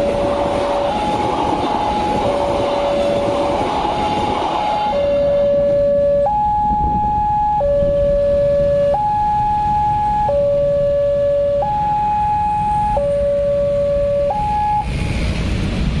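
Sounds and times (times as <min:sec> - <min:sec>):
level crossing warning alarm: 0:00.0 - 0:14.9
motorcycle and car engines: 0:13.6 - 0:16.0.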